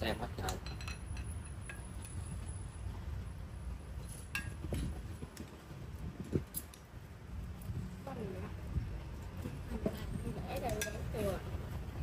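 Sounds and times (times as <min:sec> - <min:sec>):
utensils clinking on dishes: 0:00.4 - 0:02.2.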